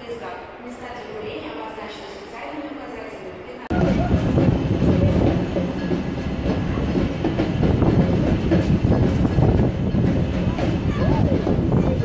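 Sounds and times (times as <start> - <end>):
crowd chatter: 0.0 - 12.0
crowd footsteps: 3.7 - 12.0
steady low rumble: 3.7 - 12.0.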